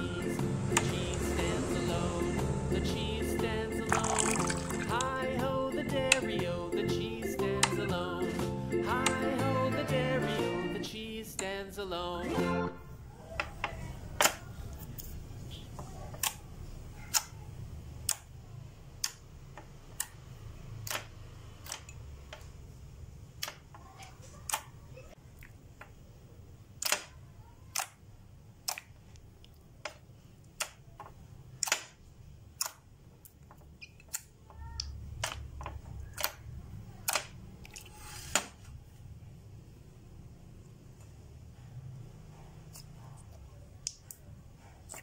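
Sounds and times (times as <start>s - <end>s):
slime squished with wet clicks: 28.6s - 30.9s, 32.6s - 35.4s, 43.8s - 44.2s.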